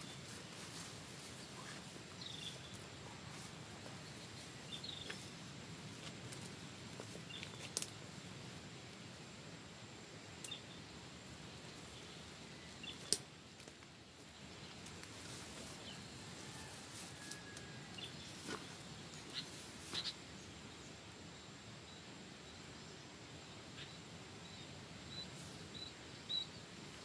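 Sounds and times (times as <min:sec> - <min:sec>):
clicks and rustles in dry grass: 0:00.0 - 0:09.2, 0:11.3 - 0:20.3
faint outdoor background: 0:00.0 - 0:27.0.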